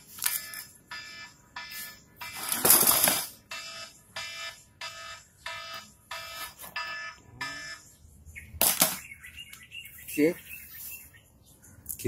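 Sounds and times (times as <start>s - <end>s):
buzzy electronic beeping: 3.5s - 8.0s.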